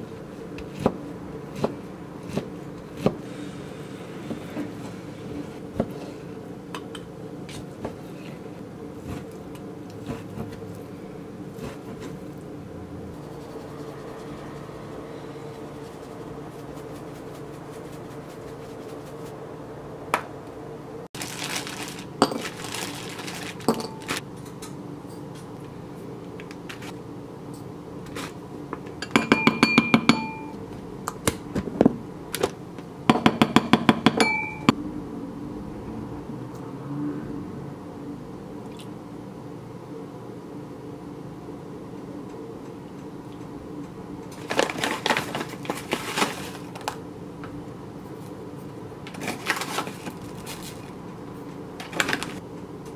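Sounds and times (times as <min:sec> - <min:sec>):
spoon clinking in a bowl: 0:29.0 - 0:30.6, 0:34.1 - 0:34.8.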